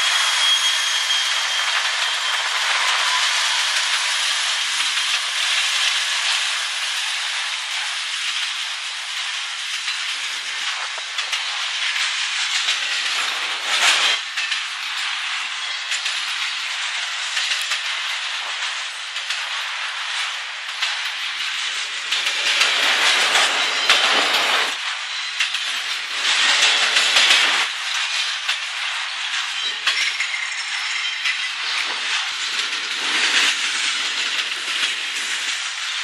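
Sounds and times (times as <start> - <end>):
faint rail clicks: 0.0 - 36.0
train wheels rushing on rails: 0.0 - 36.0.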